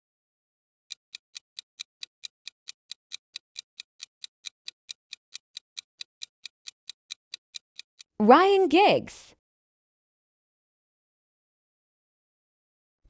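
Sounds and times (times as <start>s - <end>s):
rapid clock ticking: 0.9s - 8.2s.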